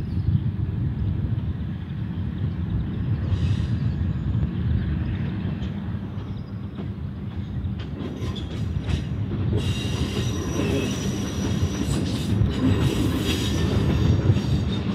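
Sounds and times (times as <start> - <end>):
diesel railcar engine rumble: 0.0 - 14.9
high-pitched wheel squeal: 9.6 - 12.3.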